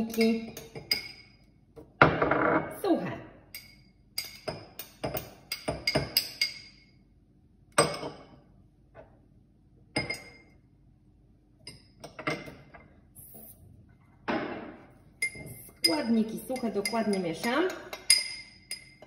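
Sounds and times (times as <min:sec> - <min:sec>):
glass and spoon clinking: 0:00.0 - 0:01.5, 0:03.5 - 0:07.0, 0:07.8 - 0:08.3, 0:10.0 - 0:10.6, 0:15.2 - 0:19.0.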